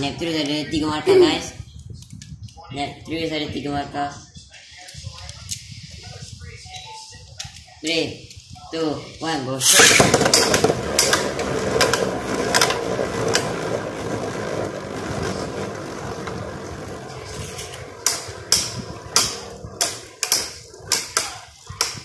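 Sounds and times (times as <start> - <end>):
spinning tops whirring and grinding: 9.6 - 22.0.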